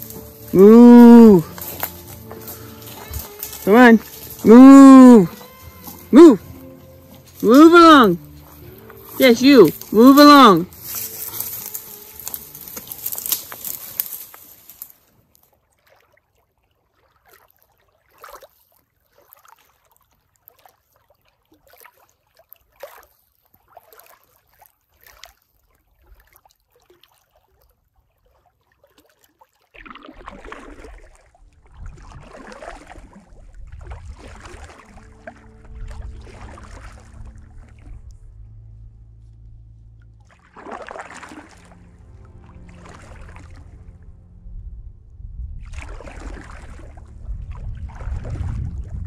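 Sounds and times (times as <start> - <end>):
paddle swishing through water: 0.0 - 49.0
rustling hiss: 1.4 - 4.5, 10.7 - 15.1
small waves lapping on pebbles: 1.4 - 4.5, 10.7 - 38.0, 40.3 - 43.9, 45.6 - 49.0.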